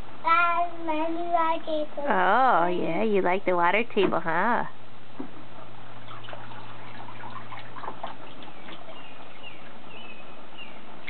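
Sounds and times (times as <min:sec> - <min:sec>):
water trickling and splashing: 0:05.6 - 0:11.0.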